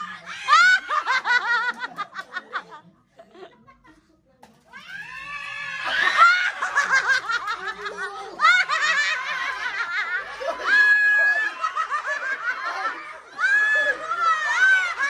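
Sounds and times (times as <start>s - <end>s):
group laughing and giggling: 0.0s - 4.2s, 5.5s - 15.0s.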